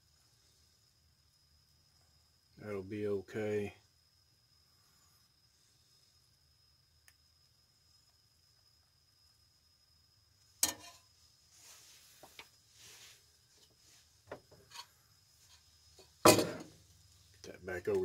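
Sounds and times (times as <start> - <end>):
metal spatula clanking in skillet: 10.6 - 11.0.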